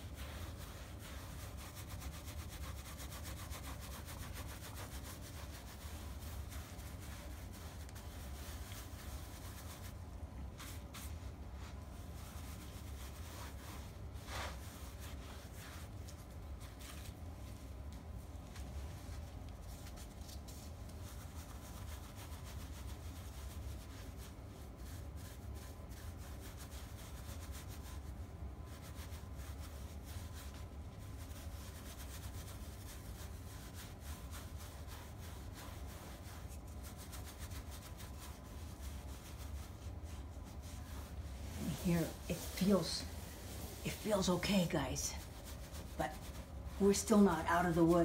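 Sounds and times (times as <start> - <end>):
paintbrush scrubbing fabric: 0.0 - 48.0.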